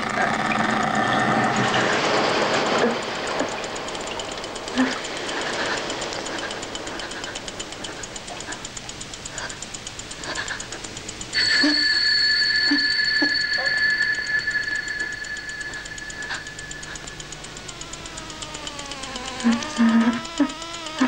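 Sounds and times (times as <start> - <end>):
fast steady ticking: 0.0 - 21.0
loud sustained high tone: 11.4 - 18.8.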